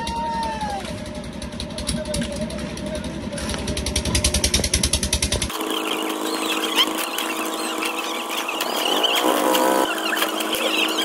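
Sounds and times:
engine rhythmic pulsing: 0.0 - 11.0
high chirps: 5.5 - 11.0.

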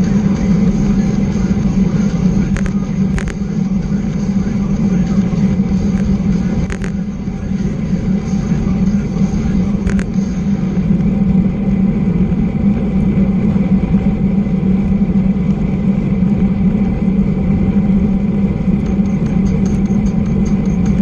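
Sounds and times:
low hum: 0.0 - 21.0
bicycle wind rush and tyre roar: 4.9 - 21.0.

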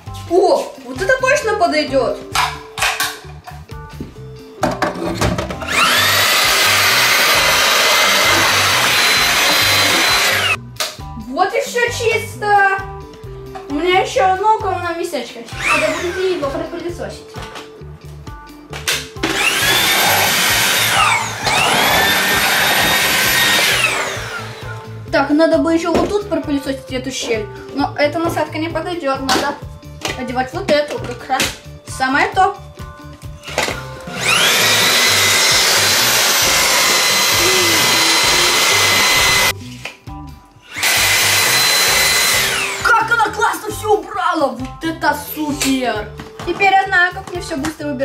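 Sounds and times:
background music: 0.0 - 48.0
vacuum motor whining: 5.6 - 10.6, 15.6 - 16.2, 19.2 - 24.9, 34.0 - 39.5, 40.7 - 42.9.

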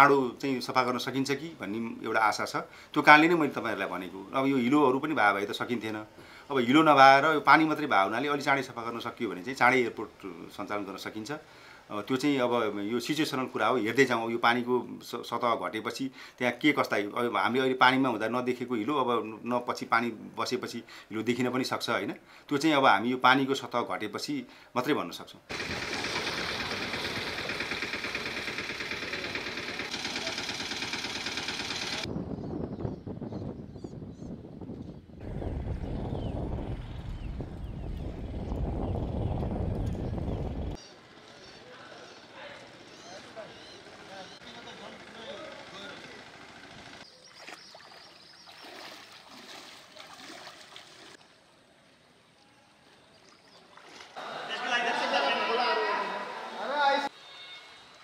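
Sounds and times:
engine running with fast pulse: 25.5 - 32.1, 43.8 - 47.0
people wading through water: 47.1 - 54.7.

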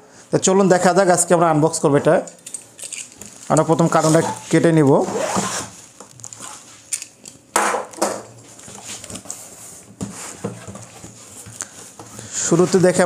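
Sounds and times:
cardboard rustling and knocking: 9.8 - 12.2.

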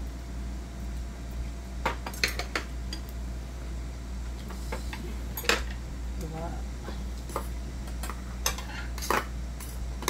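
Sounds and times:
steady low hum: 0.0 - 10.0
utensils clinking on metal bowls: 5.3 - 5.8, 7.3 - 9.8.

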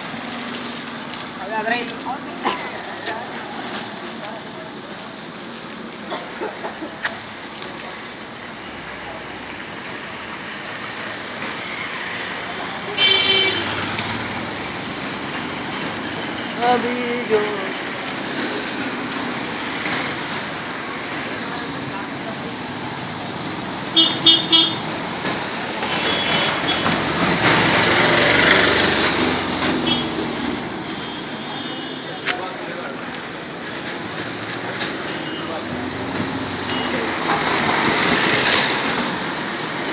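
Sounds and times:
street traffic hum: 0.0 - 39.9
vehicle passing: 27.0 - 30.8.

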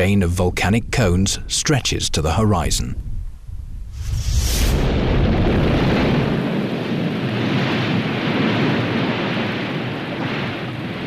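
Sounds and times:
volcanic vent rushing rumble: 0.0 - 11.0
brief hiss: 4.0 - 4.9.

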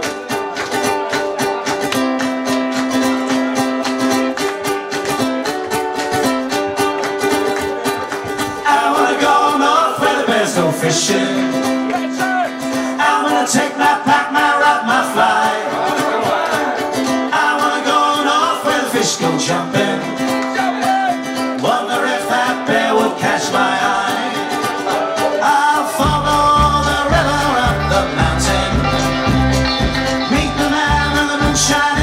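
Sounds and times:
folk-rock band playing: 0.0 - 32.0
strummed guitars: 0.0 - 32.0
person singing: 8.6 - 32.0
deep bass notes: 26.0 - 32.0.

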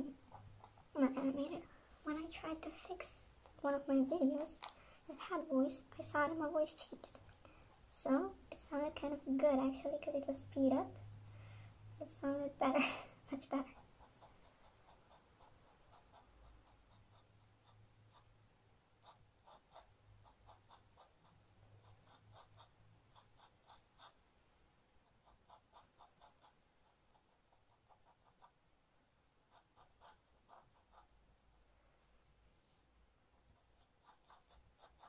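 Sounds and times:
pen nib scratching on paper: 0.1 - 1.3, 13.6 - 18.4, 19.0 - 24.2, 25.0 - 28.6, 29.4 - 31.2, 33.4 - 35.0.

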